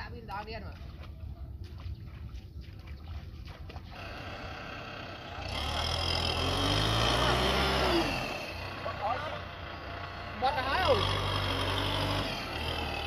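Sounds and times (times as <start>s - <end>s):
tractor diesel engine revving: 3.9s - 13.0s.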